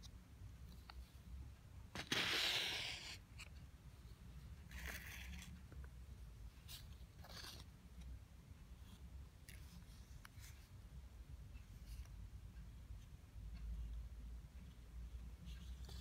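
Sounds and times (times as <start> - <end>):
paper scraping powder on surface: 2.0 - 3.2.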